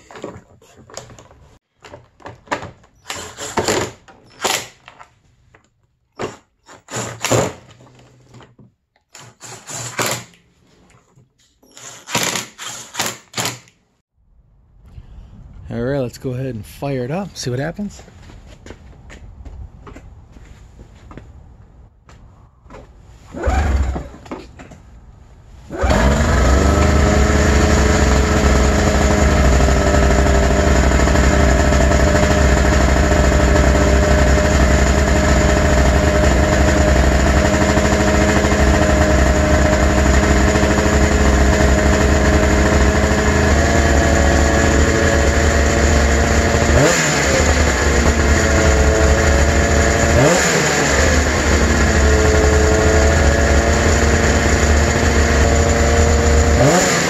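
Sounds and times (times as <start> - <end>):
snowmobile engine starting and idling: 23.2 - 24.4, 25.5 - 57.0
engine revs rising and falling: 25.7 - 57.0.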